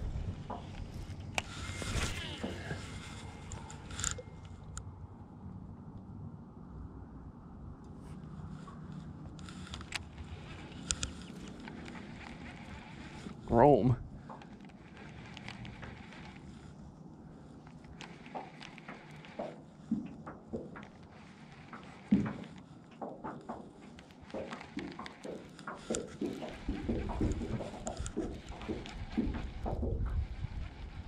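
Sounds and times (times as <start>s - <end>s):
wind rumble on microphone: 0.0s - 17.2s, 25.8s - 31.0s.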